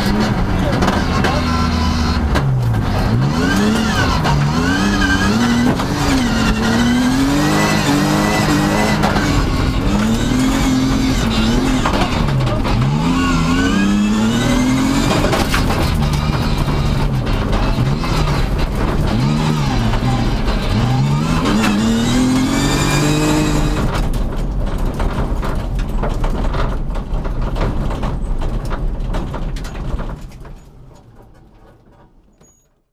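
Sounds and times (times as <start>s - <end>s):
car engine revving: 0.0s - 25.6s
road noise: 0.0s - 32.8s
rattles and clicks: 0.0s - 32.9s.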